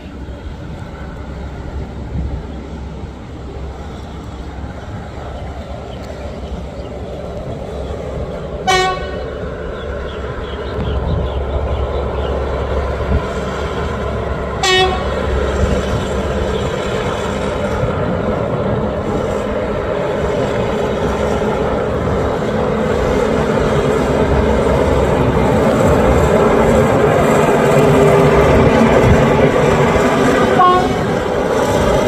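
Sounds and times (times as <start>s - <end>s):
diesel train running: 0.0s - 32.0s
train horn toot: 8.6s - 9.3s, 14.6s - 15.3s, 30.4s - 31.2s.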